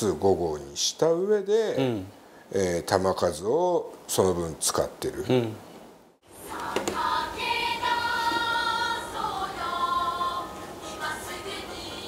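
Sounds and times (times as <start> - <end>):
choir of high voices singing: 6.3 - 12.0.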